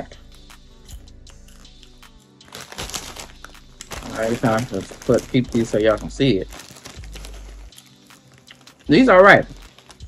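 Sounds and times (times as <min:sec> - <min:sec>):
quiet background music: 0:00.0 - 0:10.0
plastic snack bag crinkling: 0:02.4 - 0:10.0.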